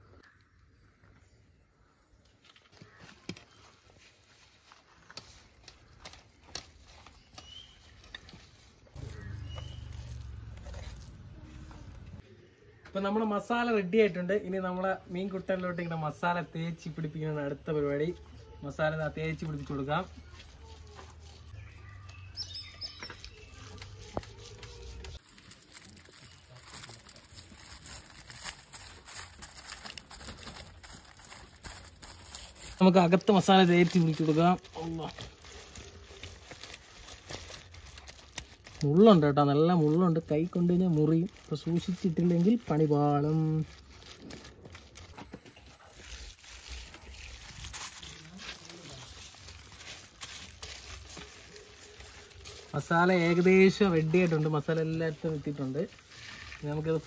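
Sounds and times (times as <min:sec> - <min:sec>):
hands squelching wet spice paste: 0:02.8 - 0:12.2, 0:18.8 - 0:57.0
bird chirps: 0:06.9 - 0:10.8, 0:20.1 - 0:25.2.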